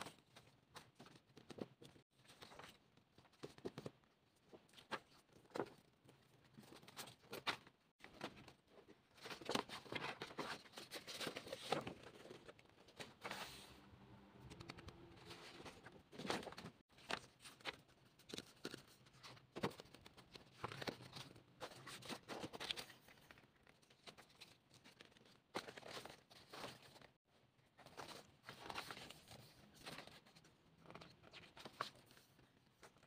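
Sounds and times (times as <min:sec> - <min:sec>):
paper rustling and crinkling: 0:00.0 - 0:13.7, 0:14.5 - 0:27.2, 0:27.8 - 0:33.0.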